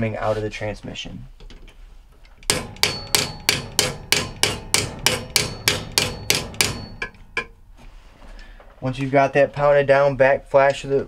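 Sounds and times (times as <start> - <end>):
hammer striking metal: 2.4 - 7.9.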